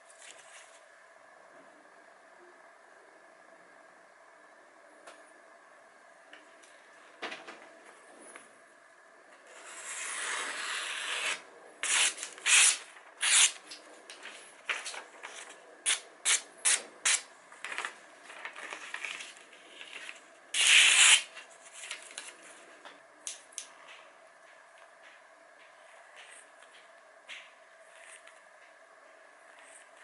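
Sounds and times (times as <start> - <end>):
knife slicing paper: 9.7 - 13.6, 20.6 - 22.0
paper rustling: 17.6 - 22.6.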